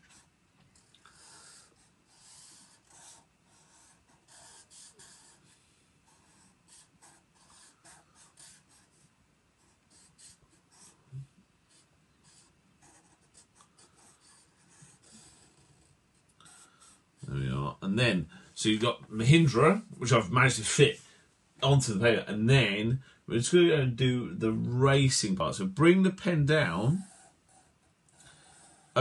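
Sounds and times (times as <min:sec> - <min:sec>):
marker strokes on paper: 0:00.0 - 0:16.6.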